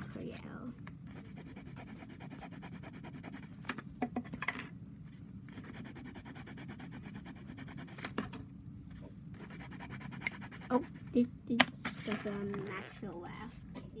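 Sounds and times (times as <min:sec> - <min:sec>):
pencil rubbing on paper: 0:01.2 - 0:03.5, 0:05.6 - 0:08.0, 0:09.4 - 0:11.1.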